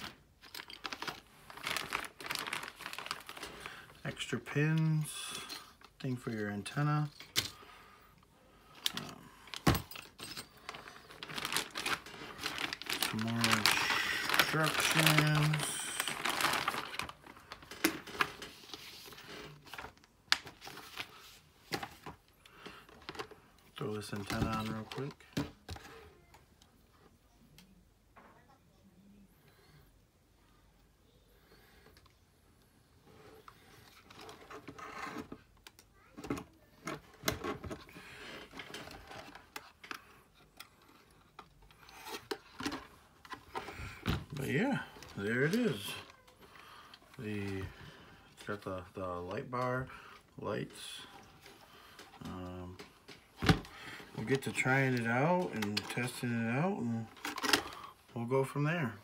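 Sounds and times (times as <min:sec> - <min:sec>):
paper rustling: 0:00.0 - 0:03.8, 0:10.6 - 0:23.2
plastic rubbing and rustling: 0:00.0 - 0:07.4, 0:08.6 - 0:27.2, 0:33.0 - 0:59.0.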